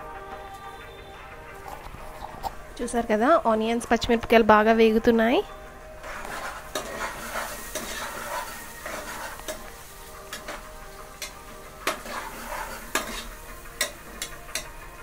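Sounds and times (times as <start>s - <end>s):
onions sizzling in hot oil: 5.9s - 15.0s
metal spatula clinking and scraping pot: 6.0s - 14.8s.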